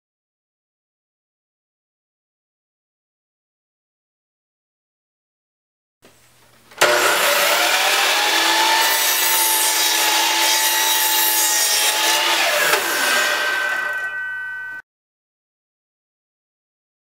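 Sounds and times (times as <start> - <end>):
saw blade cutting wood: 6.8 - 14.2
miter saw whining: 6.8 - 14.8.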